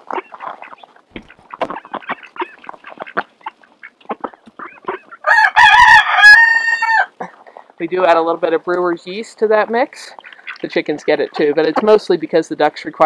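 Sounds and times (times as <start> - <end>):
ducks pecking grain: 0.0 - 13.0
rooster crowing: 5.2 - 7.1.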